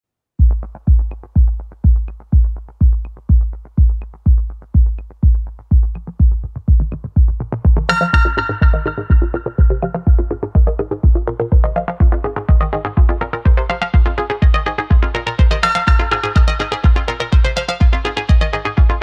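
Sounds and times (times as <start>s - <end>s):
kick-drum beat: 0.4s - 19.0s
bright synth line: 7.9s - 10.8s.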